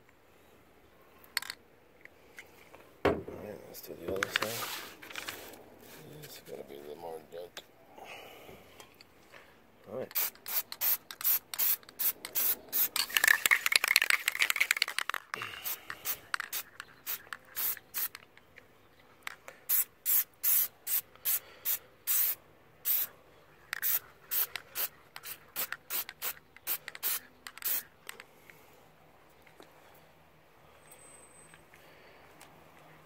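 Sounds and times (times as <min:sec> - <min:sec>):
aerosol can spraying: 0:10.1 - 0:14.5, 0:15.6 - 0:18.2, 0:19.7 - 0:23.1, 0:23.8 - 0:27.9.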